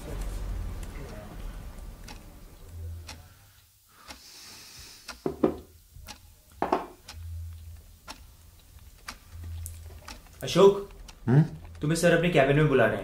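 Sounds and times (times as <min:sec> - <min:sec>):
wall clock ticking: 0:00.0 - 0:13.0.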